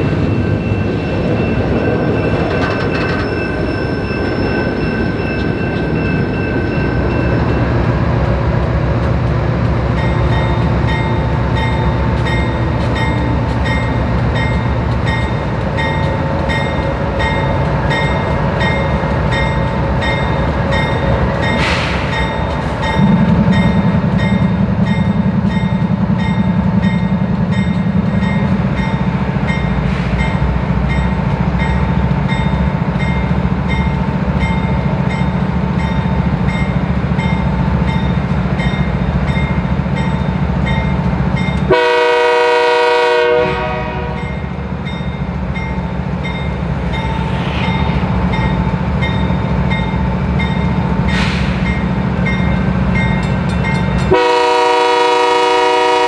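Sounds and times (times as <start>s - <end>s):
diesel locomotive running: 0.0s - 56.0s
rail noise: 0.0s - 56.0s
train air horn blast: 41.7s - 44.2s, 54.1s - 56.0s.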